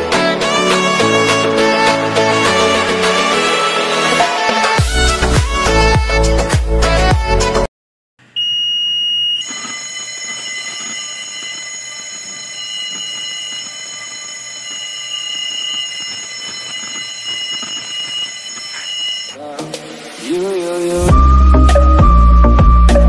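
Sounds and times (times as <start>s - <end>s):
background music: 0.0s - 7.7s, 19.4s - 23.0s
fire alarm bell ringing: 8.4s - 19.4s.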